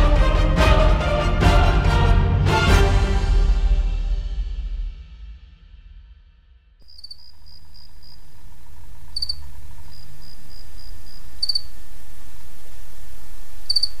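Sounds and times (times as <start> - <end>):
crickets chirping: 6.8 - 14.0.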